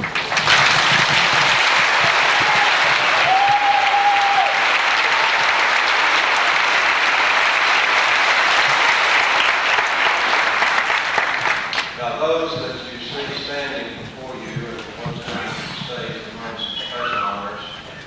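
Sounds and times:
large audience applauding: 0.0s - 12.1s.

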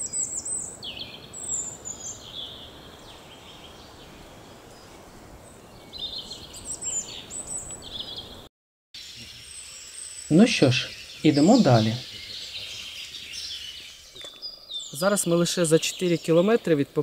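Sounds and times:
songbirds chirping: 0.0s - 17.0s
steady background hiss: 0.0s - 17.0s.

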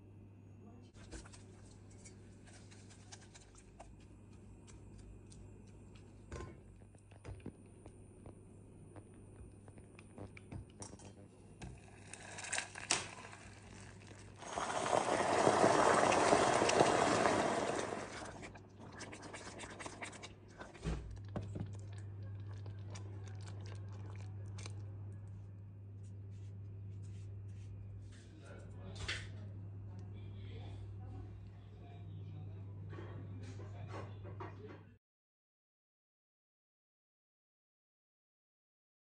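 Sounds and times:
hot caramel hissing and bubbling: 11.7s - 20.9s.

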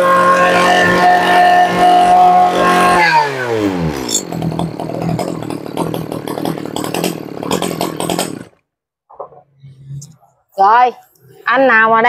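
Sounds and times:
brushcutter engine idling: 0.4s - 8.6s.

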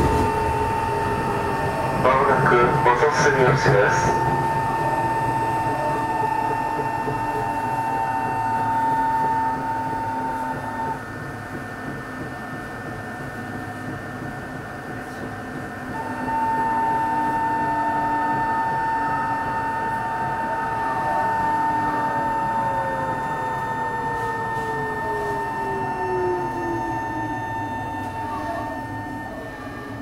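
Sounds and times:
train rumble: 0.0s - 30.0s
high electrical whine: 15.9s - 30.0s.

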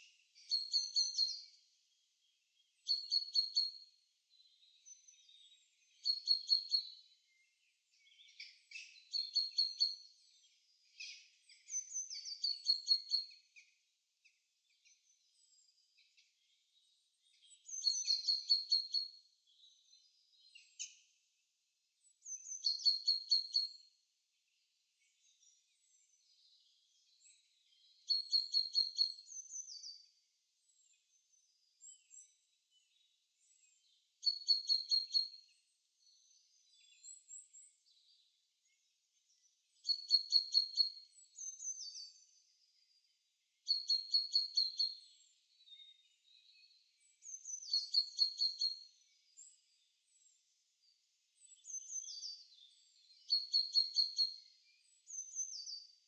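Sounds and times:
faint bird chirps: 0.0s - 56.0s
songbird singing: 0.0s - 56.0s.

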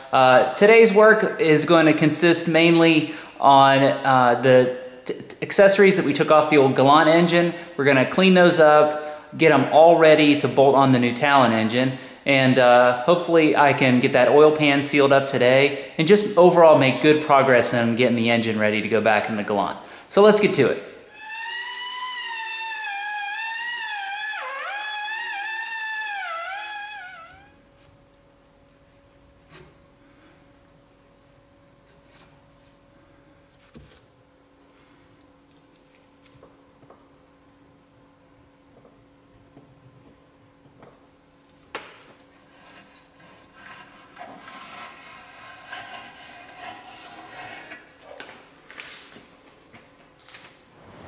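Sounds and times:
faint steady hum: 0.0s - 51.0s
hand scraper scraping metal: 21.1s - 27.5s, 42.4s - 48.0s.

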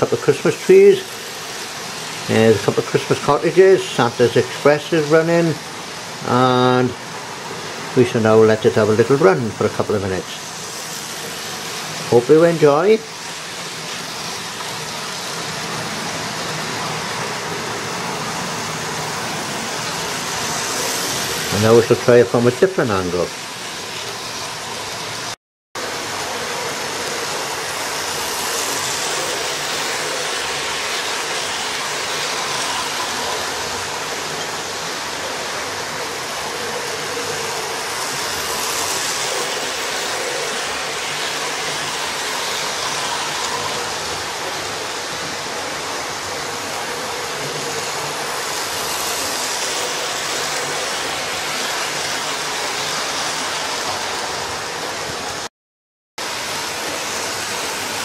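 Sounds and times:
model train motor whirring: 25.9s - 55.4s.

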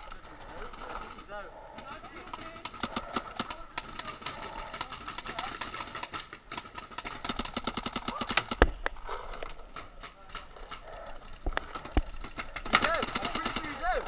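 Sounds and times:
paintball markers firing: 1.8s - 9.0s, 11.6s - 14.0s.

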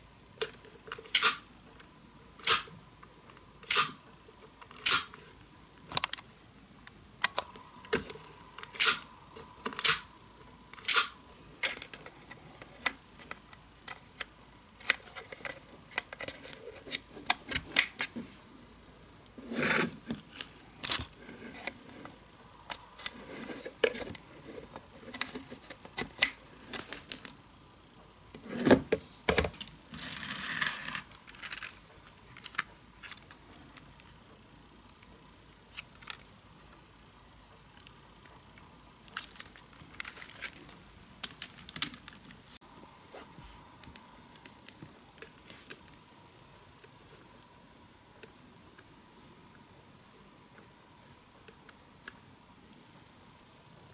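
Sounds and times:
plastic parts clicking: 7.2s - 10.1s, 29.3s - 34.1s, 35.7s - 36.3s, 39.0s - 42.4s.

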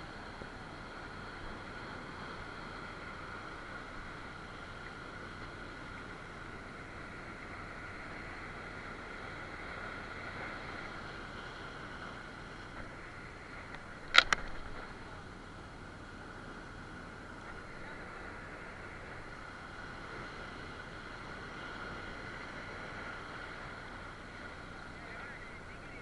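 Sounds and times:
surf washing over rocks: 0.0s - 26.0s
sharp loud clicks: 14.1s - 14.6s.

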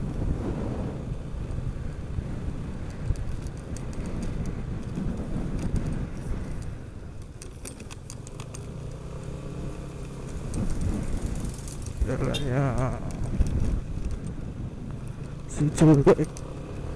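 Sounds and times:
scooter engine running: 0.0s - 16.9s
light rattles and clicks: 1.4s - 16.9s.

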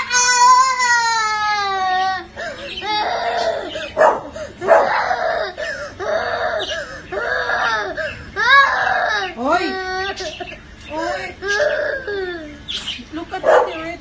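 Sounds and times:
child crying and screaming: 0.0s - 4.0s, 4.8s - 10.4s, 11.0s - 12.6s
child sobbing breaths: 2.3s - 2.8s, 3.6s - 8.4s.

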